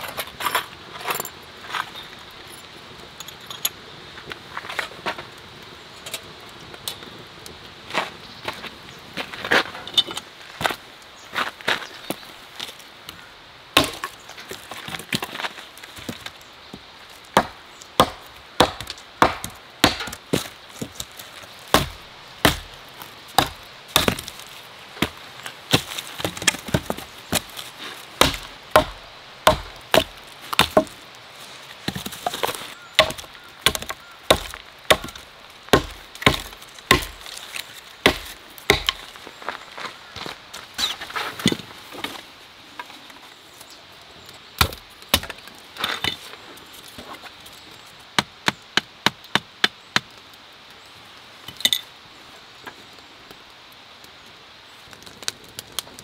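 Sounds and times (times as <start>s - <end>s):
hatchet chopping into log: 17.4s - 20.2s, 21.7s - 22.8s, 23.4s - 24.3s, 28.2s - 30.9s, 33.0s - 37.3s, 38.0s - 39.0s.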